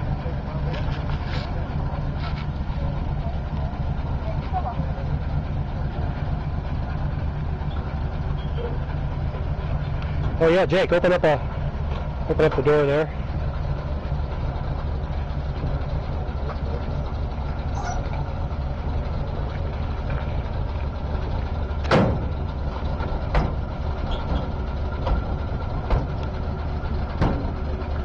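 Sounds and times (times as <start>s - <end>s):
truck engine idling: 0.0s - 28.0s
metal doors and latches knocking: 23.0s - 26.2s, 27.1s - 27.6s.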